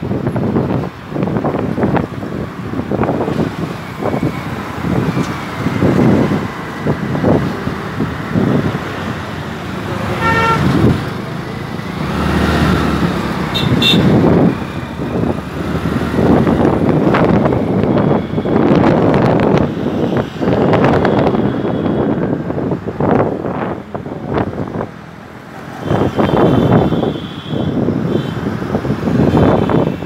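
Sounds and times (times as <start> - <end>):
road traffic: 0.0 - 30.0
wind buffeting microphone: 0.0 - 30.0
vehicle horn tooting: 10.1 - 10.8, 13.5 - 14.2, 25.8 - 28.4.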